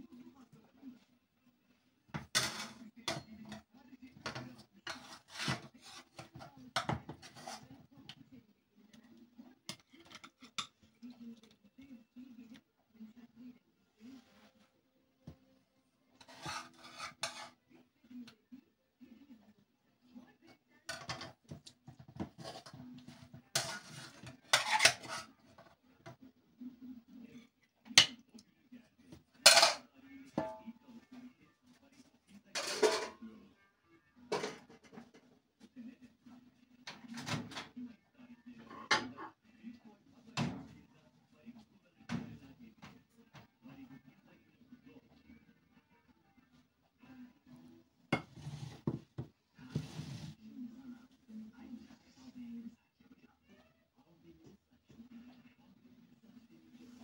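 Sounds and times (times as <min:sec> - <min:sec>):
metal utensils scraping a pan: 0:02.2 - 0:03.6, 0:04.2 - 0:07.6, 0:16.2 - 0:17.6, 0:22.2 - 0:25.7, 0:29.4 - 0:29.8, 0:32.5 - 0:33.2, 0:34.3 - 0:35.2, 0:38.6 - 0:39.4, 0:48.2 - 0:48.9.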